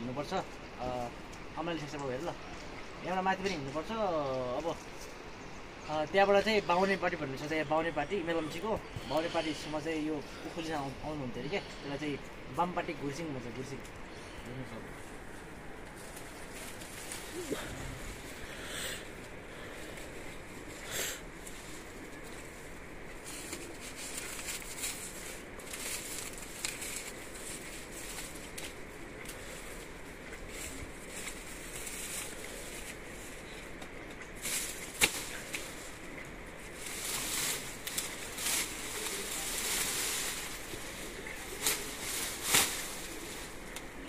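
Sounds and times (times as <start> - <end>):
dry leaves and stalks rustling: 0.0 - 44.0
sugarcane chopping: 33.8 - 35.8.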